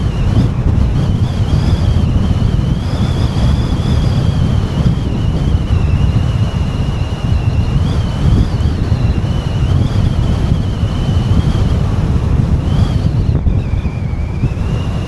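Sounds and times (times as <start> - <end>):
high wavering whistle: 0.0 - 11.9, 12.5 - 15.0
wind buffeting microphone: 0.0 - 15.0.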